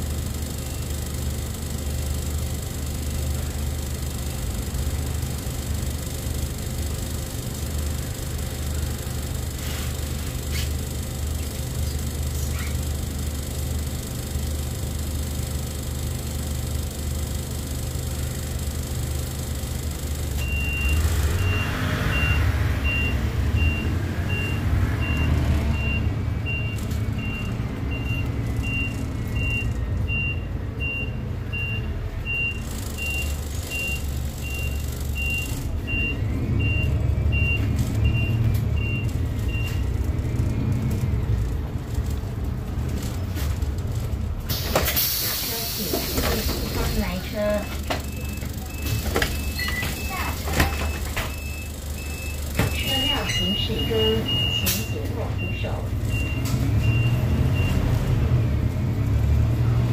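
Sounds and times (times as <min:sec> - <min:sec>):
bus engine running: 0:00.0 - 0:59.9
high electronic beep: 0:47.6 - 0:57.8.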